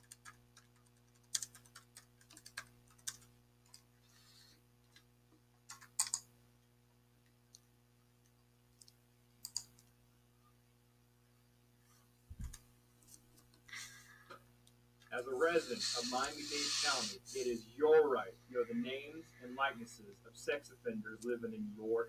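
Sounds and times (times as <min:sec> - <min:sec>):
keyboard typing: 0:00.0 - 0:03.8, 0:05.7 - 0:06.2, 0:09.4 - 0:09.9
faint electrical hum: 0:00.0 - 0:22.0.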